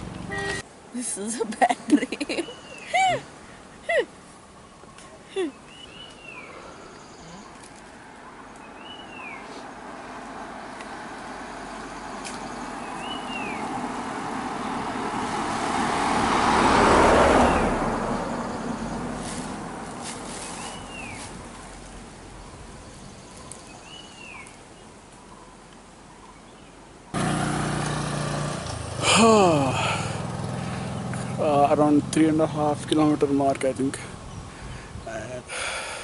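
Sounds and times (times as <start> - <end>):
vehicle passing on road: 0.0 - 0.7, 5.9 - 24.0, 27.1 - 35.0
bird call: 12.2 - 13.7.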